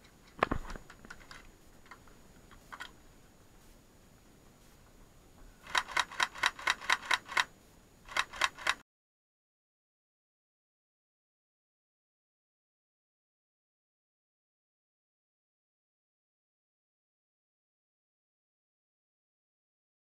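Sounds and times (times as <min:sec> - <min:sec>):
faint clicks: 0:00.0 - 0:03.0.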